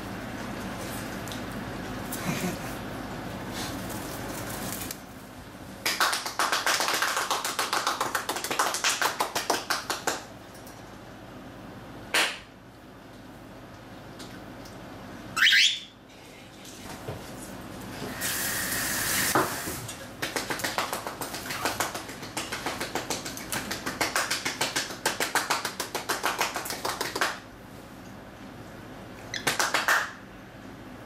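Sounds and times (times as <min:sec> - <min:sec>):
cockatiel chirping: 0:15.4 - 0:15.9.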